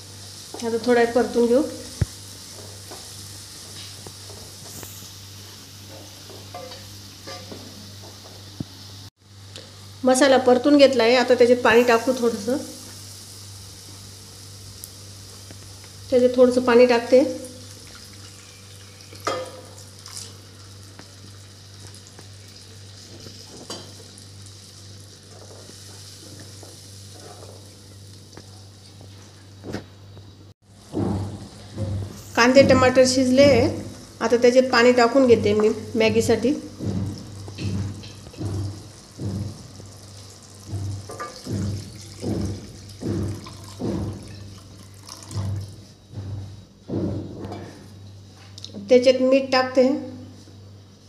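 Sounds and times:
masala sizzling in a pan: 0.0s - 29.7s, 31.6s - 45.0s
spatula knocking on pan: 30.8s - 34.0s, 35.2s - 39.8s, 40.6s - 44.5s.

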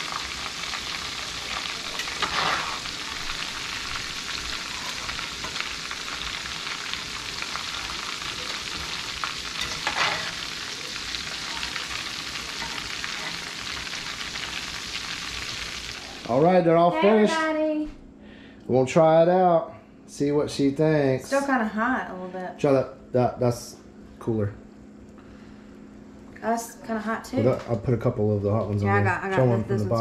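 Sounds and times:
fish deep-frying in oil: 0.0s - 16.4s.

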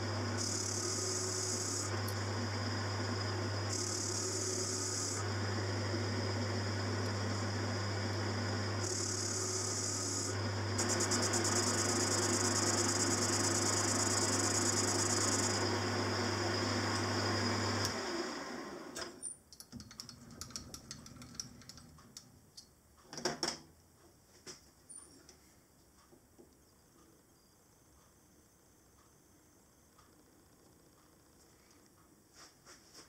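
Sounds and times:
lathe spinning down: 0.0s - 19.0s
lathe cutting metal: 6.8s - 18.0s.

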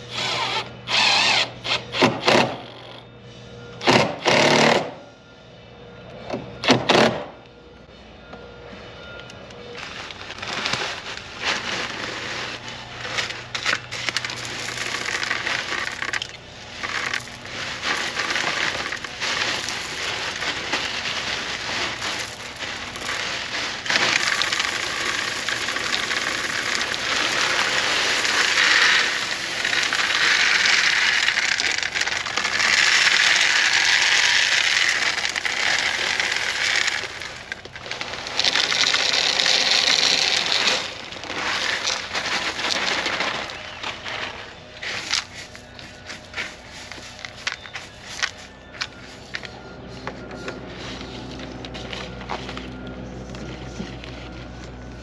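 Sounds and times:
gravel pouring into plastic: 9.8s - 49.4s.

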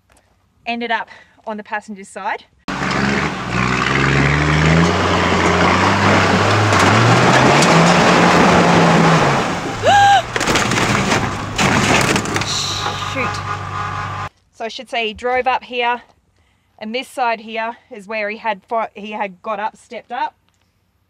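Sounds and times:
engine revving hard: 2.7s - 14.3s
tyres spinning in loose dirt: 2.7s - 14.3s
vehicle rolling over thumping: 2.7s - 14.3s
short rising cry: 2.8s - 10.4s.

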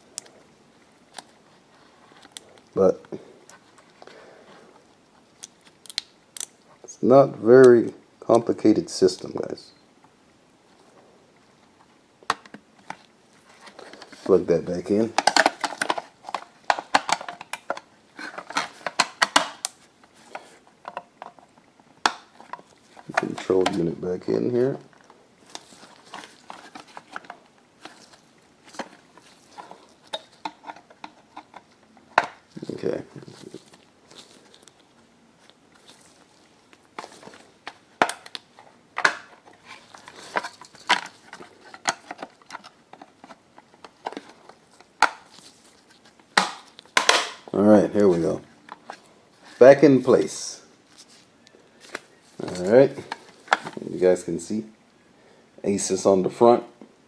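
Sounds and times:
plastic parts clicking and knocking: 12.2s - 23.9s, 25.0s - 32.6s, 37.0s - 45.4s, 46.3s - 47.6s.

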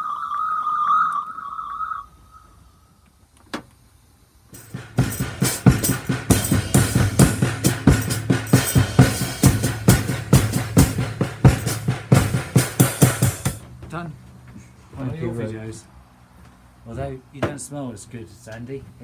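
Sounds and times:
band jamming: 4.5s - 13.6s
drum kit beat: 4.5s - 13.6s.

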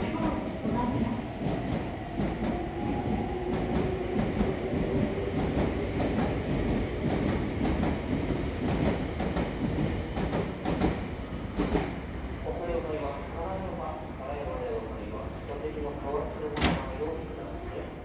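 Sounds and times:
train clacks: 0.0s - 12.0s
train rumble: 0.0s - 18.0s.

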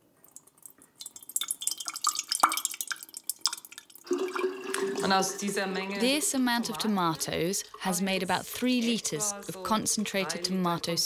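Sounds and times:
thick sauce dripping and plopping: 0.1s - 4.9s.

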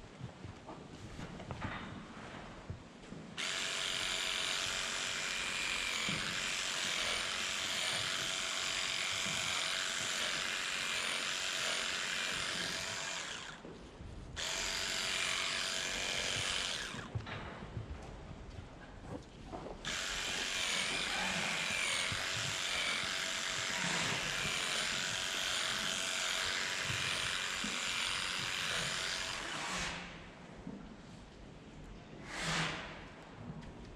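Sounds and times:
electric clippers buzzing: 3.4s - 13.6s, 14.4s - 17.2s, 19.9s - 29.5s.

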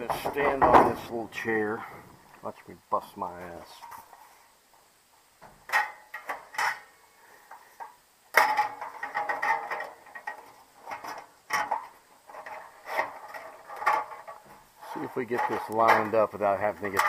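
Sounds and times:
sheet metal clanking and rattling: 8.4s - 17.0s.

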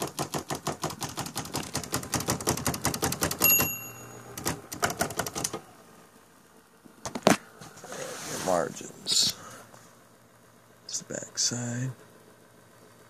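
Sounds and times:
typewriter typing: 0.0s - 3.8s, 4.4s - 5.6s
typewriter margin bell: 3.4s - 4.5s.

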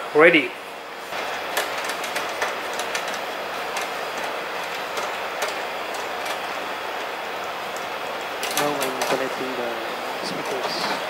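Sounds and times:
steady background hiss: 0.0s - 11.0s
cable plugs clicking and rattling: 1.1s - 6.6s, 7.7s - 9.4s.

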